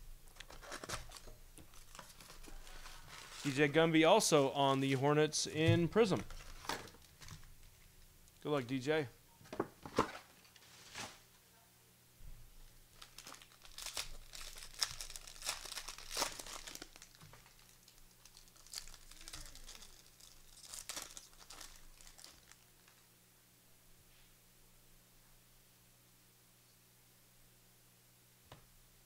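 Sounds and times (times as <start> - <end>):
foil wrappers tearing and crinkling: 0.3 - 3.7, 6.3 - 7.5, 12.9 - 23.0.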